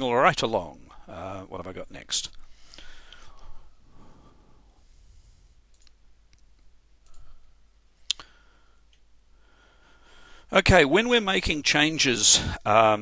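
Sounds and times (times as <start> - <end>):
computer mouse clicks: 5.7 - 7.3.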